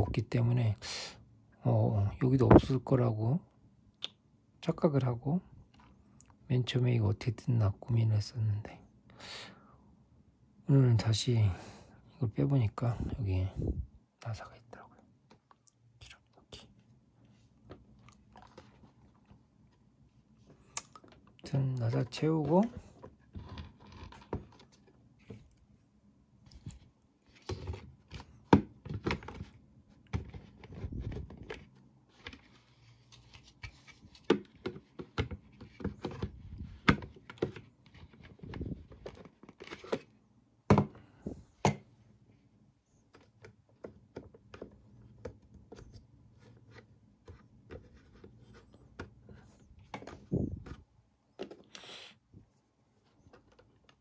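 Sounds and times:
plastic parts clicking and knocking: 34.2 - 40.0.

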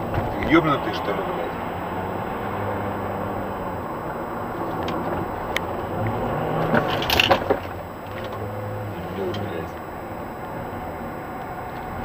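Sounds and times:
car engine hum: 0.0 - 12.0
road noise inside car: 0.0 - 12.0.

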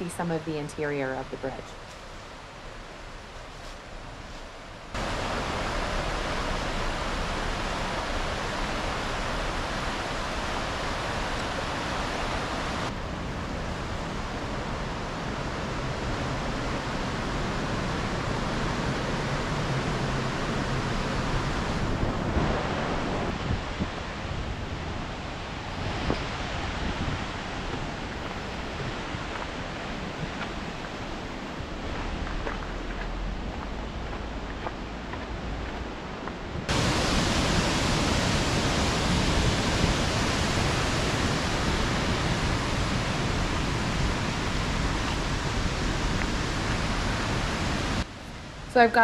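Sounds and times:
water rushing over rocks: 4.9 - 13.0, 36.7 - 48.1.

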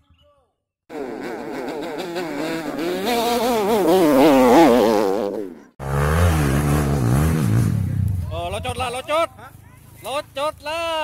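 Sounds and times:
dirt bike engine revving: 0.9 - 9.0.

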